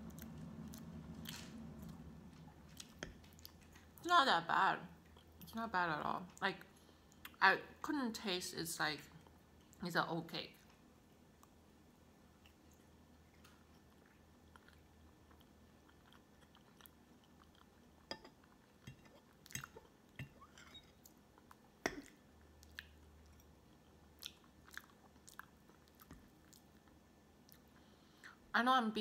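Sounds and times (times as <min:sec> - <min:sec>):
chewing soft cake: 0:00.0 - 0:04.0, 0:04.9 - 0:05.6, 0:10.5 - 0:28.5.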